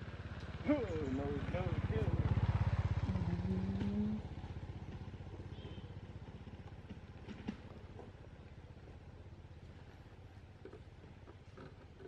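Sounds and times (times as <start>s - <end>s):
small engine throbbing: 0.0s - 6.9s.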